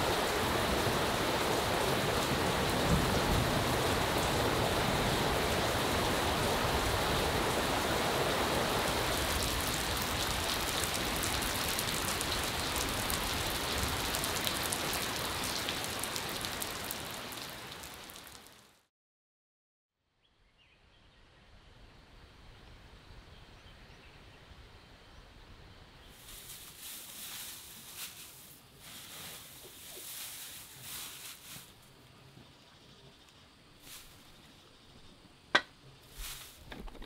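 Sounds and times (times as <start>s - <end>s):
heavy rain falling: 0.0s - 18.8s.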